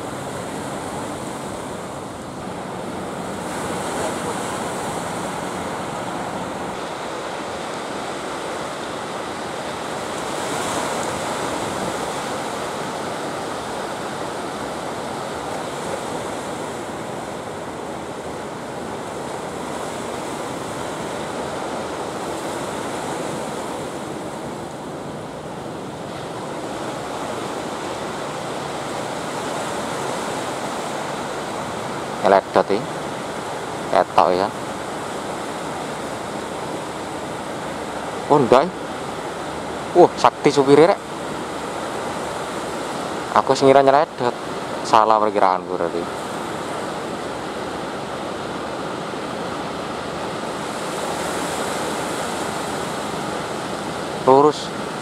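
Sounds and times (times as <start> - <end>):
ocean surf breaking: 0.0 - 55.0.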